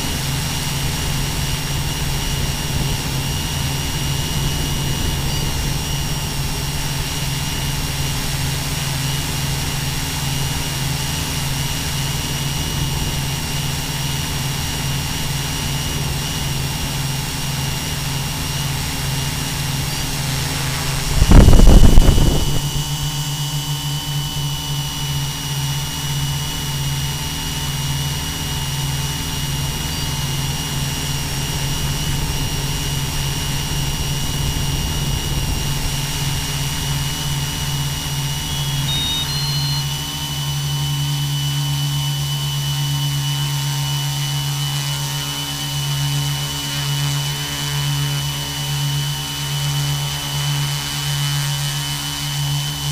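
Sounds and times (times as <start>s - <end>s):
drone motors humming: 0.0s - 52.7s
wind rushing: 20.0s - 23.1s.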